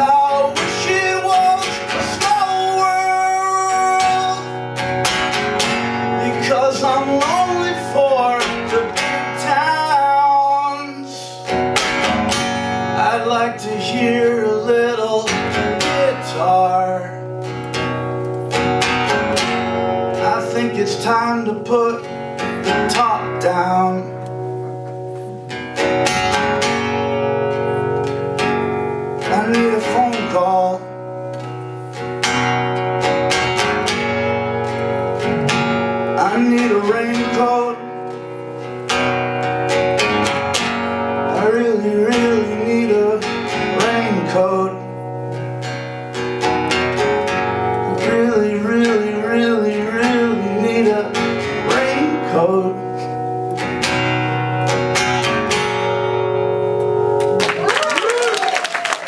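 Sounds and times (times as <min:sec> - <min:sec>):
man singing: 0:00.0 - 0:04.7, 0:06.0 - 0:11.5, 0:12.8 - 0:17.3, 0:20.1 - 0:24.3, 0:29.2 - 0:31.0, 0:35.2 - 0:38.1, 0:41.2 - 0:45.1, 0:47.8 - 0:53.2
acoustic guitar strumming: 0:00.0 - 0:57.6.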